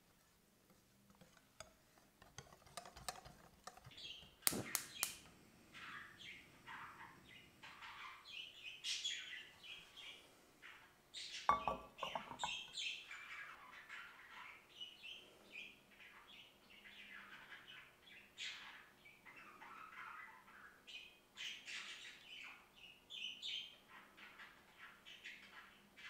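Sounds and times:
small birds chirping: 3.6s - 26.0s
gas hob igniter clicks: 4.4s - 5.2s
frying pan clattering on grate: 11.5s - 12.6s.

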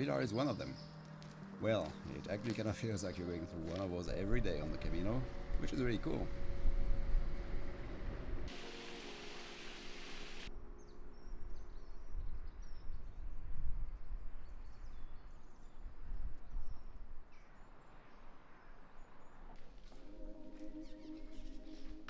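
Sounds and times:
small birds chirping: 0.0s - 6.2s
low rumble: 4.4s - 8.5s
rush of hiss: 8.5s - 10.5s.

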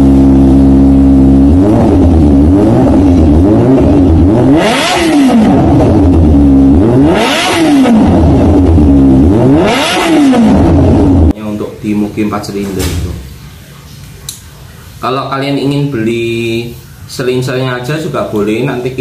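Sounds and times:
motorcycle engine revving: 0.0s - 11.4s.

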